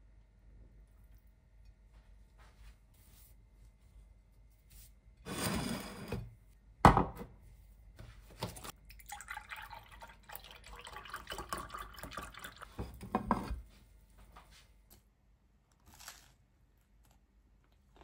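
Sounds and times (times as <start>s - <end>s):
water running from tap: 8.9s - 12.8s.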